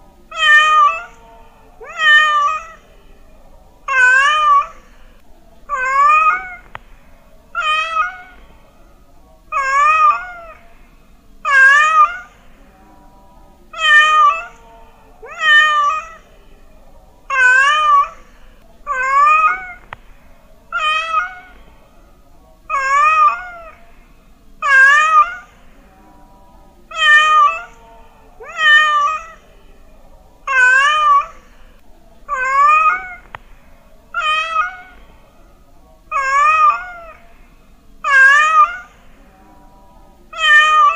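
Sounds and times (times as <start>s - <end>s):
cat meowing: 0.3s - 1.2s, 1.8s - 2.8s, 3.9s - 4.8s, 5.7s - 6.7s, 7.6s - 8.5s, 9.5s - 10.6s, 11.5s - 12.4s, 13.8s - 14.6s, 15.2s - 16.2s, 17.3s - 18.2s, 18.9s - 19.9s, 20.7s - 21.6s, 22.7s - 23.8s, 24.6s - 25.6s, 26.9s - 27.8s, 28.4s - 29.4s, 30.5s - 31.4s, 32.3s - 33.3s, 34.1s - 35.1s, 36.1s - 37.2s, 38.0s - 39.0s, 40.3s - 40.9s.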